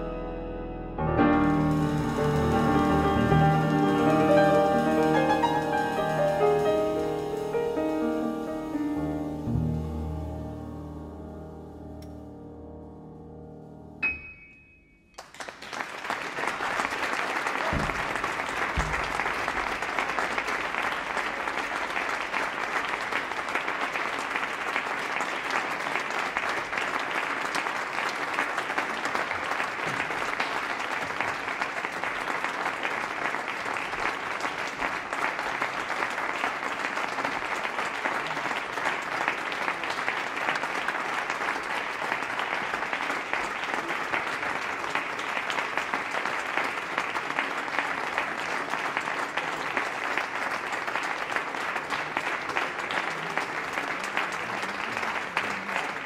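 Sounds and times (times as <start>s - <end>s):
music ending on sharp note: 1.2s - 14.2s
audience applause: 1.5s - 10.4s, 15.2s - 56.0s
low thumps: 17.7s - 19.7s.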